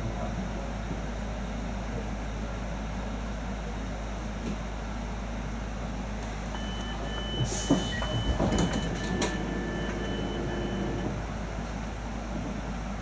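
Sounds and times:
short high door warning beeps: 6.5s - 11.2s
door mechanism clunks: 6.9s - 11.0s.

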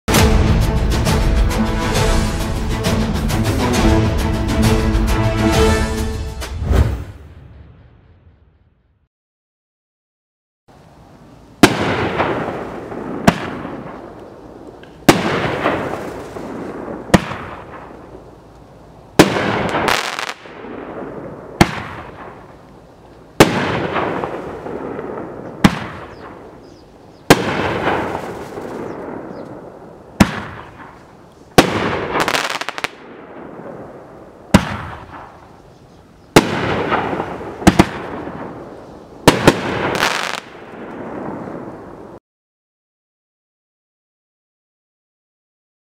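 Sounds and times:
firework crackle: 11.5s - 35.6s, 36.3s - 42.2s
firework bangs: 11.6s - 18.2s, 19.1s - 22.7s, 23.3s - 35.5s, 36.3s - 42.0s.

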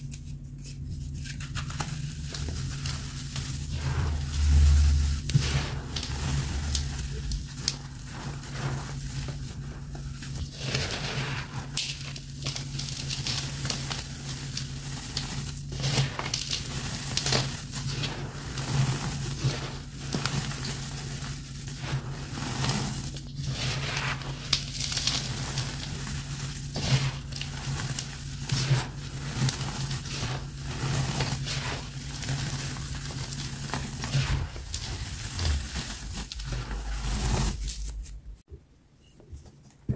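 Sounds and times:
powder sifting hiss: 1.5s - 38.4s.

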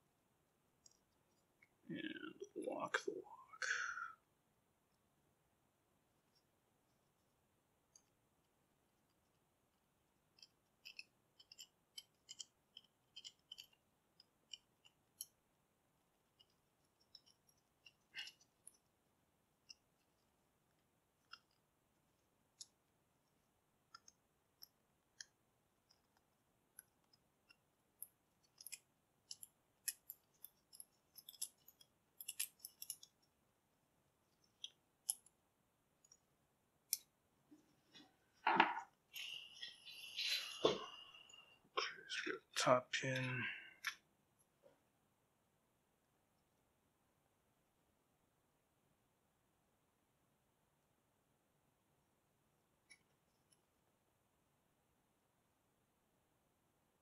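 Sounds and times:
metallic clicks of lock pins: 28.5s - 33.1s.

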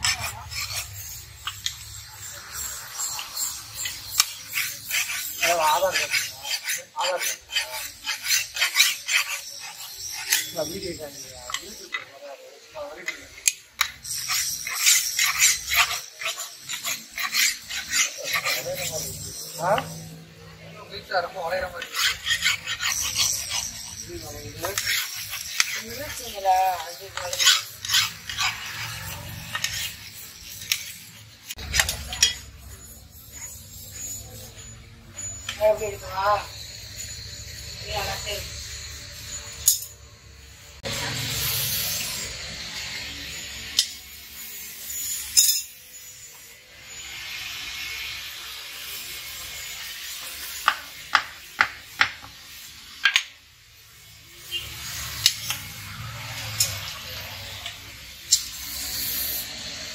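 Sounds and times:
file rasping on metal blade: 0.0s - 12.2s, 13.0s - 20.4s, 21.0s - 39.9s.

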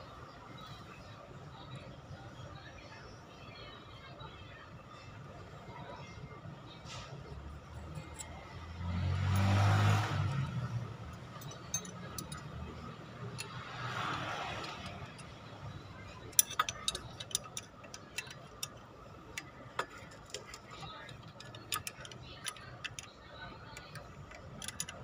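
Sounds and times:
wrench clicking on bolts: 7.8s - 8.4s, 9.2s - 25.0s.

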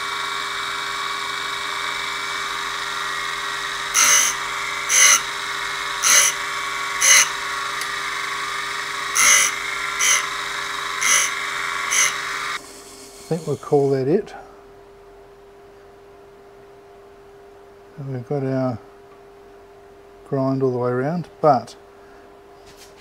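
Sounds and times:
drill bit grinding rasps: 0.0s - 14.0s
grinder running: 0.0s - 14.2s.

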